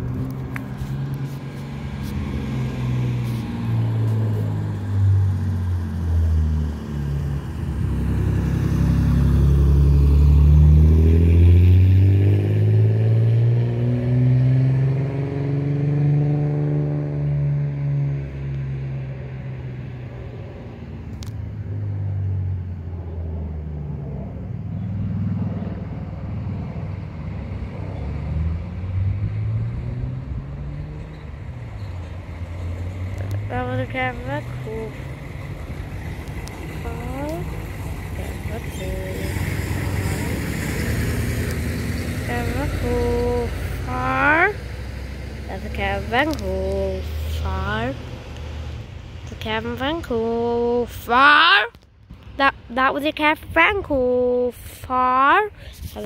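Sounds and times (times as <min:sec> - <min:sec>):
jet airliner flying overhead: 0:21.6 - 0:28.2.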